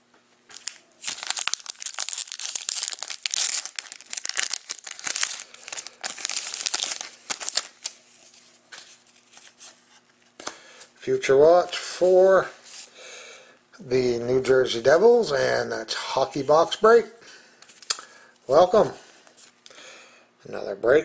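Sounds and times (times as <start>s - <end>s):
foil wrapper crinkling and tearing: 0.5s - 9.6s.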